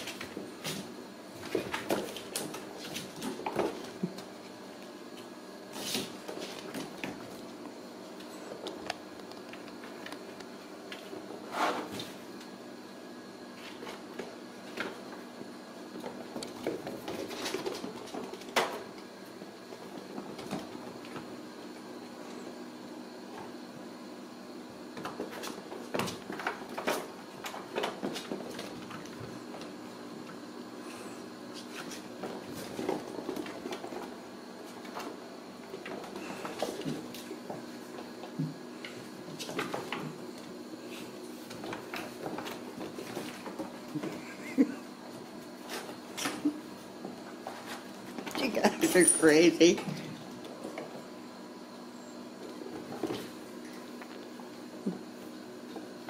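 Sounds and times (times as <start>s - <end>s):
kittens scampering on tile floor: 0.0s - 12.7s, 13.4s - 23.9s, 24.8s - 56.0s
steady low hum: 0.0s - 56.0s
kittens batting cardboard scratchers: 15.9s - 21.3s.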